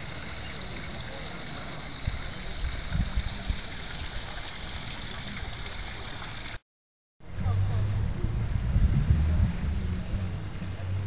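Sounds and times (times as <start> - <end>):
fountain water splashing: 0.0 - 6.6.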